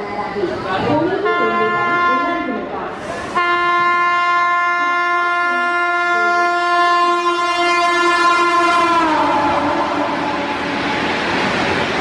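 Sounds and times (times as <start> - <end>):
passing train coaches rushing: 0.0 - 12.0
locomotive air horn blast: 3.2 - 11.0.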